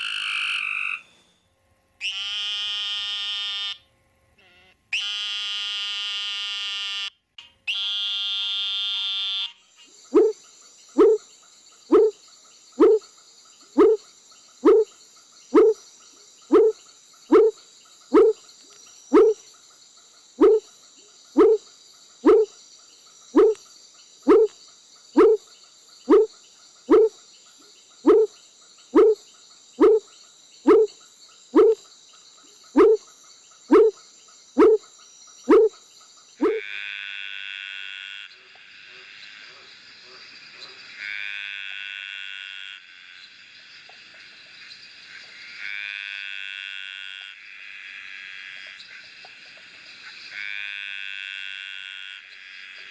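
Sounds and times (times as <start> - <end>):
tree frog calling: 0.0 - 1.0, 7.7 - 36.9
insects humming: 7.7 - 52.9
frog croaking: 9.9 - 18.5, 19.1 - 22.6, 23.2 - 23.6, 24.2 - 27.2, 28.0 - 36.9.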